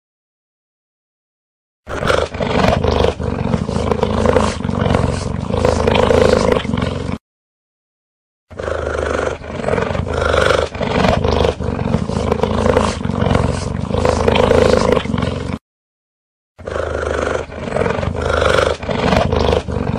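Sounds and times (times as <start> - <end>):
big cat growling: 1.9 - 7.2, 8.5 - 15.6, 16.6 - 19.9.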